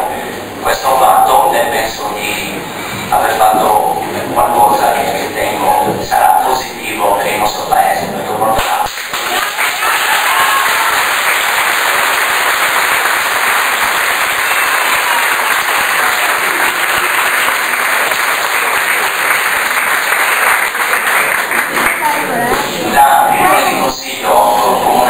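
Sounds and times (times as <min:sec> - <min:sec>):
crowd applauding: 0:08.8 - 0:22.8.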